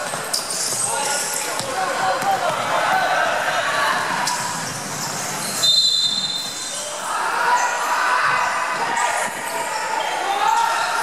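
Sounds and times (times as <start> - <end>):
voices on a court: 0.0 - 11.0
referee's whistle blast: 5.6 - 6.8.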